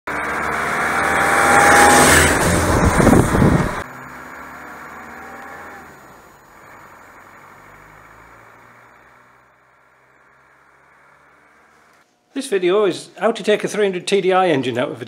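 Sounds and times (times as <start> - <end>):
vehicle driving past: 0.1 - 12.1.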